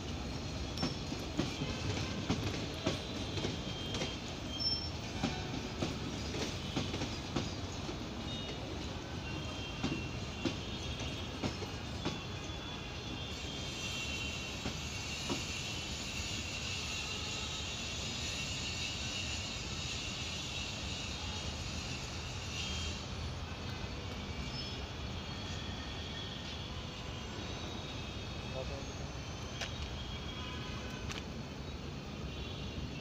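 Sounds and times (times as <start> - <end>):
steady train rumble: 0.0 - 33.0
high wheel squeals: 0.6 - 7.2, 12.4 - 31.1
train wheels clicking over rail joints: 0.6 - 8.6, 14.1 - 16.7.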